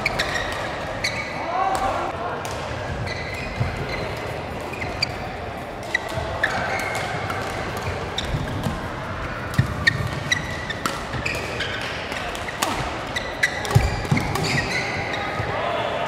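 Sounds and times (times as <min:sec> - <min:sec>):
shoes squeaking on court: 0:00.0 - 0:01.4, 0:02.9 - 0:08.9, 0:09.5 - 0:15.5
rackets hitting shuttlecock: 0:05.8 - 0:08.8, 0:09.4 - 0:15.4.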